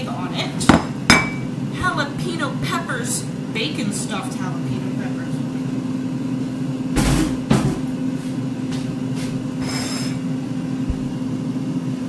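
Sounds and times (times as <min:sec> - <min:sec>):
air fryer humming: 0:00.0 - 0:12.0
sharp knocks: 0:10.9 - 0:11.2.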